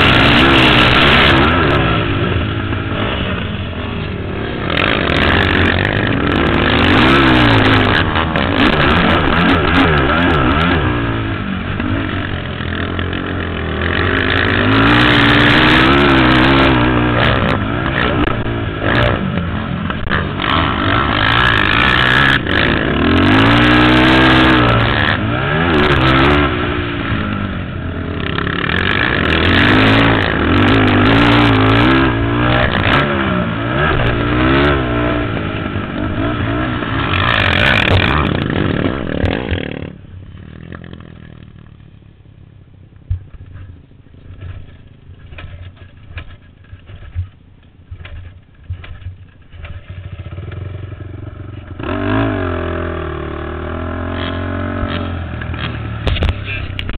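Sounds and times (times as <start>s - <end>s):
atv engine revving: 0.0s - 41.9s, 43.2s - 56.9s.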